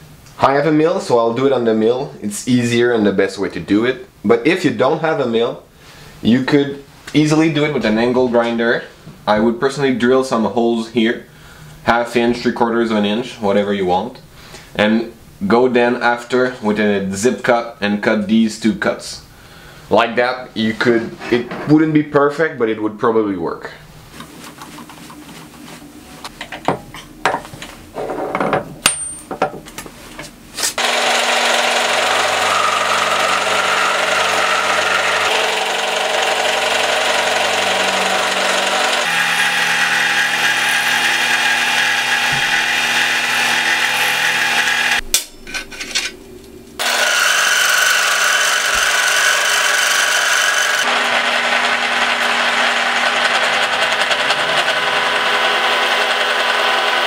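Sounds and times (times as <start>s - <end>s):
milling machine cutting steel: 30.8s - 45.0s, 46.8s - 57.0s.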